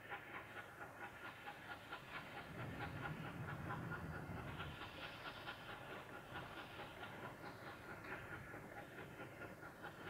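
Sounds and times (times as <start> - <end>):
steam locomotive exhaust beating: 0.0 - 10.0.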